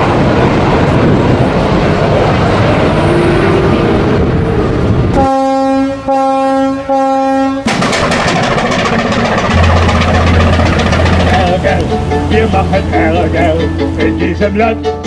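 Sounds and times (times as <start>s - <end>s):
wind noise: 0.0s - 5.3s
rushing harbour noise: 0.0s - 15.0s
boat horn blasts: 5.1s - 7.7s.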